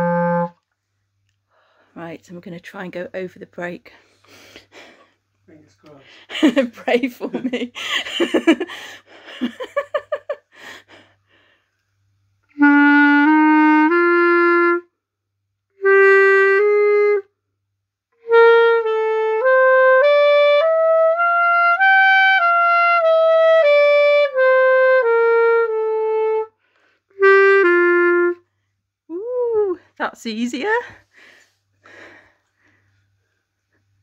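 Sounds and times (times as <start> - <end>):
clarinet playing a scale: 0.0 - 0.6, 12.5 - 14.9, 15.8 - 17.3, 18.2 - 28.4.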